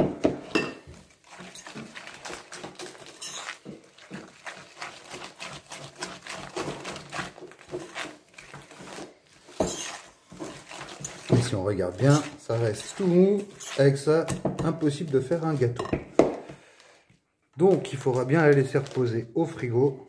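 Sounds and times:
spoon scraping dough in bowl: 0:00.8 - 0:15.7.

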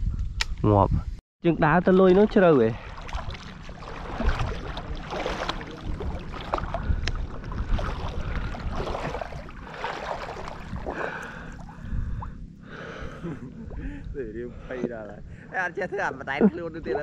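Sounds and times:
water sloshing while wading: 0:01.6 - 0:14.2.

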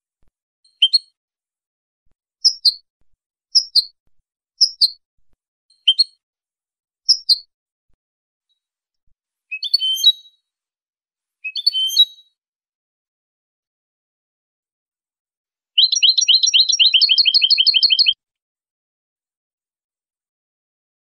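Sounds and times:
bird twittering song: 0:00.7 - 0:01.2, 0:02.4 - 0:02.8, 0:03.5 - 0:03.9, 0:04.6 - 0:05.0, 0:05.7 - 0:06.2, 0:07.1 - 0:07.5, 0:09.5 - 0:10.4, 0:11.5 - 0:12.4, 0:15.8 - 0:18.2.

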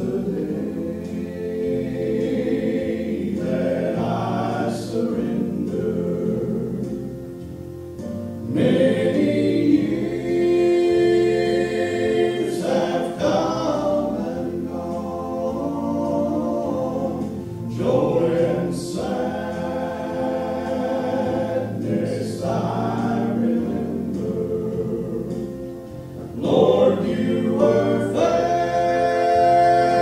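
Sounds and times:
male trio singing in harmony: 0:00.0 - 0:07.6, 0:08.4 - 0:30.0.

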